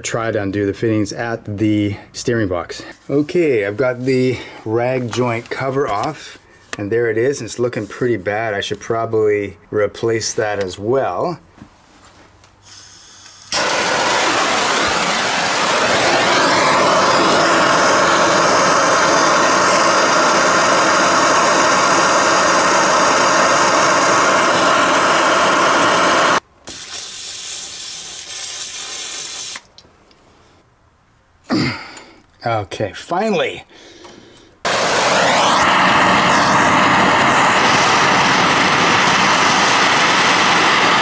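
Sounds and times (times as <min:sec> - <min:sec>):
gas torch hissing: 0:12.6 - 0:29.7, 0:34.6 - 0:41.0.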